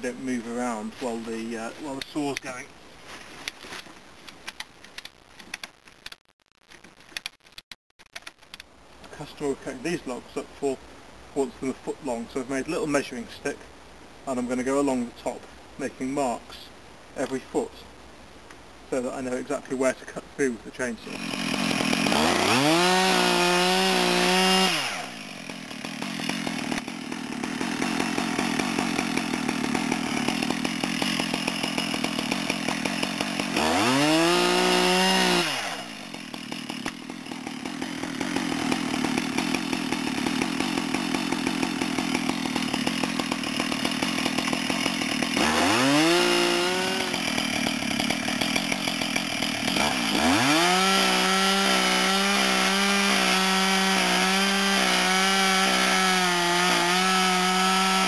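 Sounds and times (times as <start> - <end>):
chainsaw revving and cutting logs: 0.0 - 2.6, 21.0 - 58.0.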